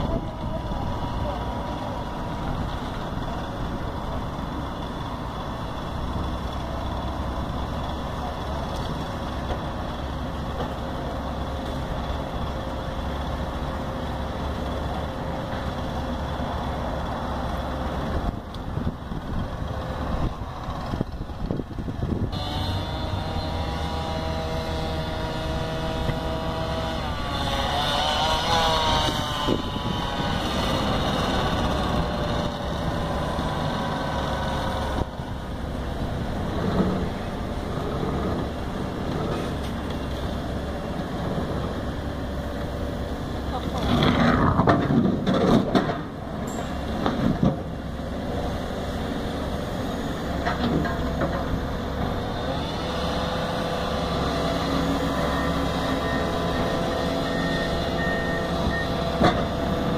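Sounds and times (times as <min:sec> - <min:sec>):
excavator diesel engines running: 0:00.0 - 0:59.9.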